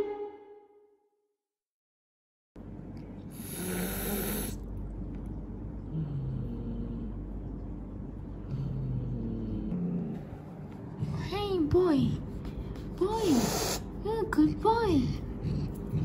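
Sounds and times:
cat hissing: 0:03.3 - 0:04.6, 0:13.2 - 0:14.0
cat growling: 0:03.4 - 0:04.6, 0:08.4 - 0:10.4.

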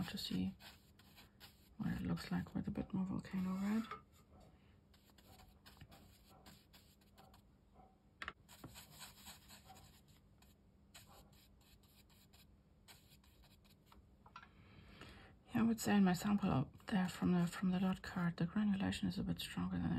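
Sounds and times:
brush working paint onto paper: 0:00.0 - 0:03.9, 0:04.9 - 0:07.4, 0:08.4 - 0:14.0.

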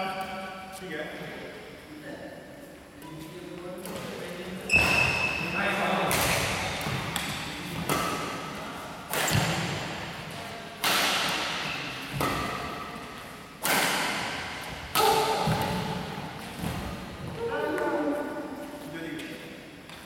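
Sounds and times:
racquets striking shuttlecock: 0:06.0 - 0:17.0.

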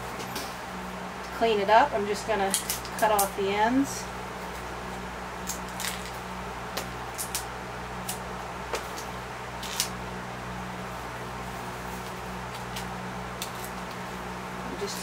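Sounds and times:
steady low hum: 0:00.0 - 0:15.0
scissors snipping twine: 0:02.5 - 0:03.4, 0:06.8 - 0:10.0, 0:12.0 - 0:14.0.

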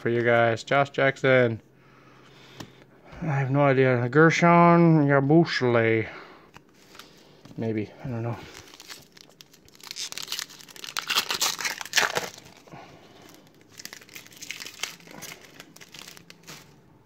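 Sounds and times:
foil wrapper tearing and crinkling: 0:08.4 - 0:16.8.

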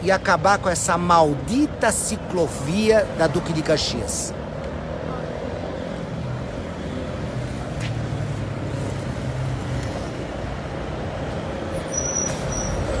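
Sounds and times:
traffic engine hum and road noise: 0:00.0 - 0:13.0
brief high squeal: 0:11.9 - 0:13.0.

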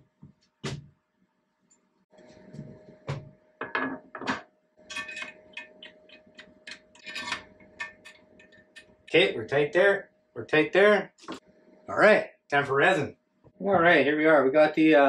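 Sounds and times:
faint steady hum: 0:01.2 - 0:15.0.

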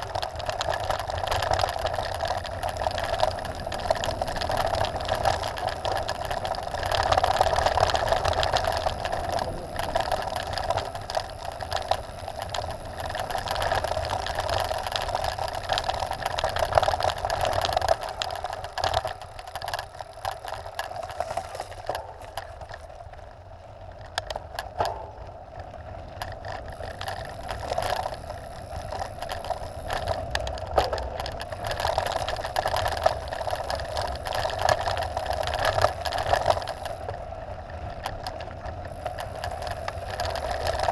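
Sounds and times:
bike tyres on gravel: 0:00.0 - 0:40.9
wind on microphone: 0:03.0 - 0:14.0.

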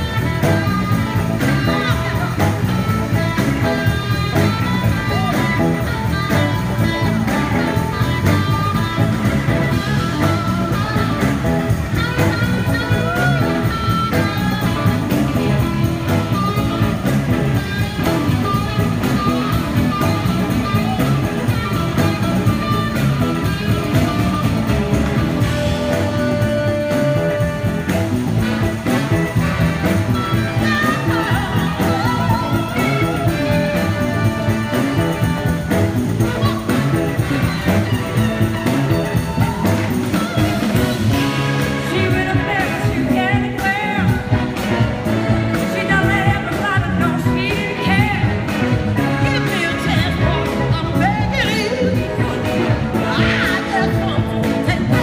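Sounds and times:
electric guitars: 0:00.0 - 0:55.0
horn section: 0:00.0 - 0:55.0
live soul-rock band: 0:00.0 - 0:55.0.

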